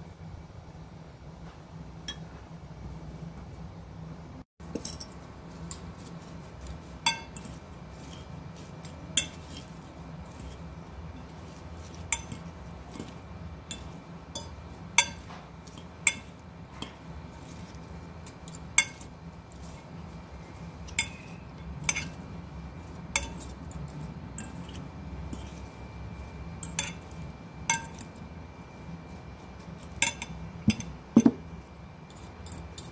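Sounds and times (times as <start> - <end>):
forks clinking against glass bowl: 4.7 - 22.2, 22.8 - 28.2, 29.6 - 32.9.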